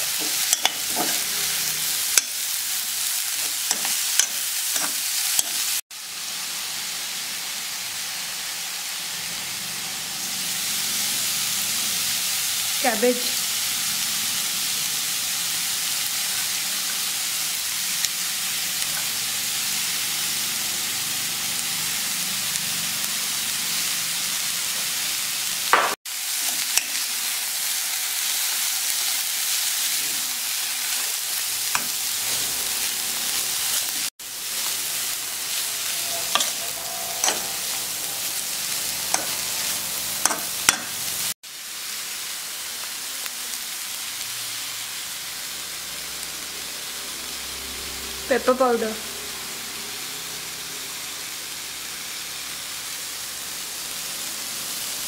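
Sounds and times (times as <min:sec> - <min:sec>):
metal spoon scraping a pan: 0:00.0 - 0:05.8, 0:26.4 - 0:27.2, 0:29.9 - 0:41.3
food sizzling in a pan: 0:00.0 - 0:55.0.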